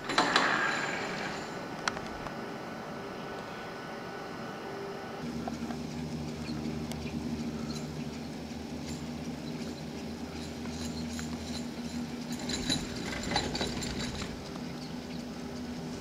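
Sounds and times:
haul rope humming over sheaves: 0.0 - 16.0.

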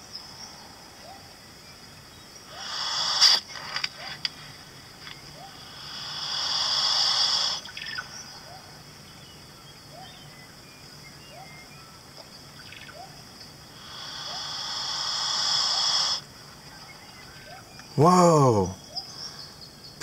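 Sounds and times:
lizard hissing: 2.5 - 3.7, 5.5 - 7.9, 13.7 - 16.3
small chirps: 2.5 - 5.5.

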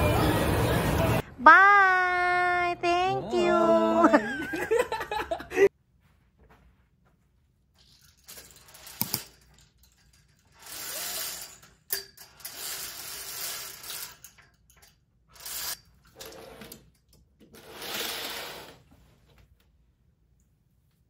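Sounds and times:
curtains sliding along rail: 7.8 - 19.4.

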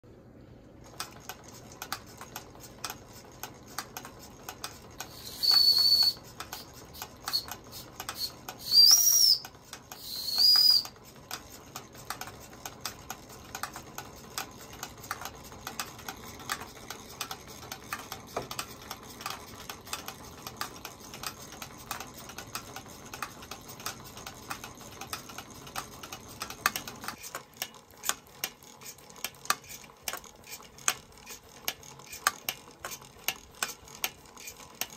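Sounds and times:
toy steam engine ticking and clattering: 0.8 - 34.9
high steam whistle blasts: 5.2 - 6.2, 8.2 - 9.4, 10.0 - 10.8.

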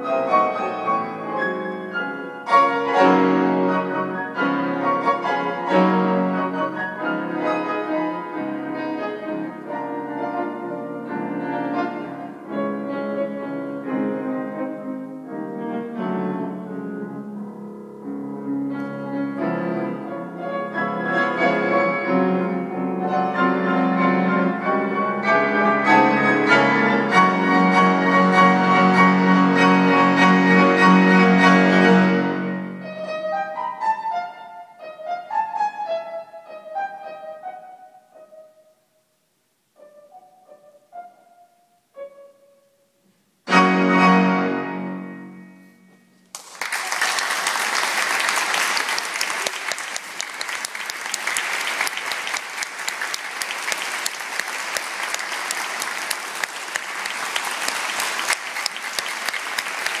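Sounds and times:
grand piano playing: 0.0 - 38.8, 39.8 - 46.3
audience applause: 46.3 - 60.0.

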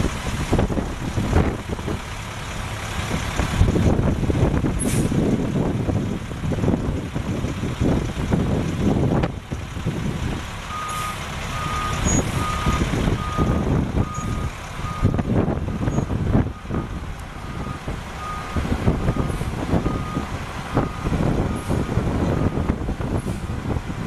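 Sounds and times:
diesel truck engine running: 0.0 - 24.0
truck backup alarm beeping: 10.7 - 22.9.

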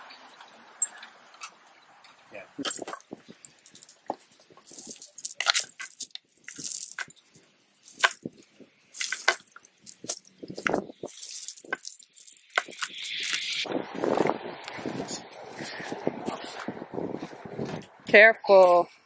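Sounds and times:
steel chain clinking and rattling: 0.8 - 13.6.

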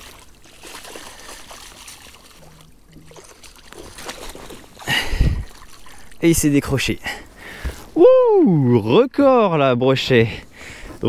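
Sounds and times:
water trickling and sloshing: 0.0 - 8.0.

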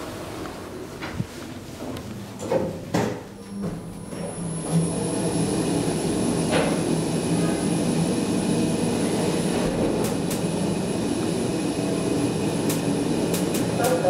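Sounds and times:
elevator car running: 3.4 - 14.0.

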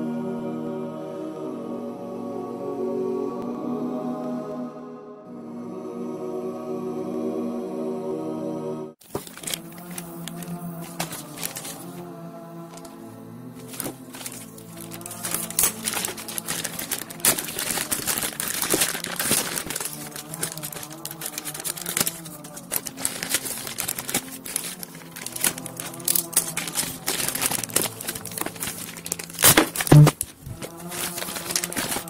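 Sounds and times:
background music: 0.0 - 32.0
plastic bag crinkling: 9.0 - 13.0, 13.6 - 32.0.

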